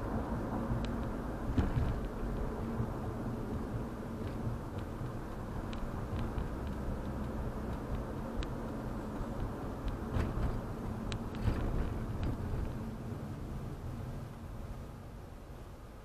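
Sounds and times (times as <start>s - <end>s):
car engine and tyres rumbling: 0.0s - 16.0s
faint clicks: 3.5s - 11.6s.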